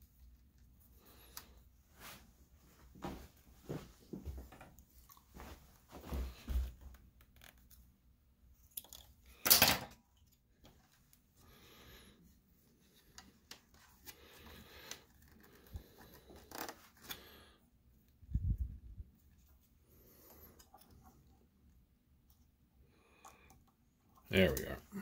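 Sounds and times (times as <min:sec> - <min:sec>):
hands handling wires and small parts: 0:06.4 - 0:11.3, 0:12.7 - 0:17.2.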